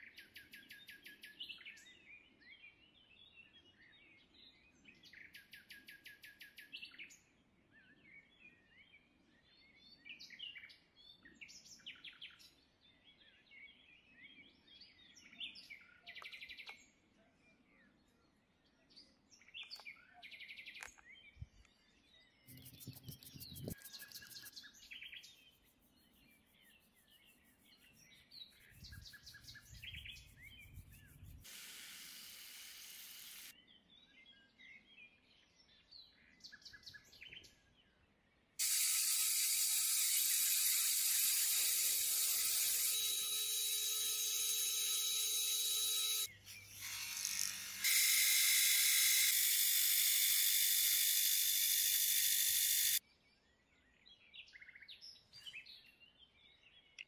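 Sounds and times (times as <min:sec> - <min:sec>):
wire wheel brushing steel rod: 0:22.5 - 0:24.5.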